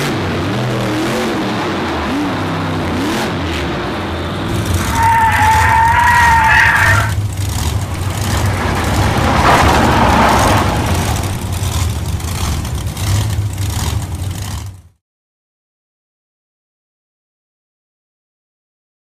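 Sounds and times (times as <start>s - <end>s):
high tire squeal whine: 3.4s - 14.9s
low engine rumble: 3.6s - 15.0s
rough noisy rush: 3.8s - 14.9s.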